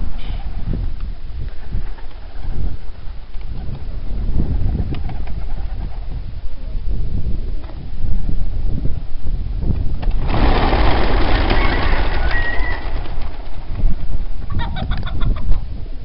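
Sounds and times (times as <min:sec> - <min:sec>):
pigeon wingbeats: 0:04.7 - 0:06.1, 0:10.0 - 0:15.2
sharp wing claps: 0:10.0 - 0:13.8.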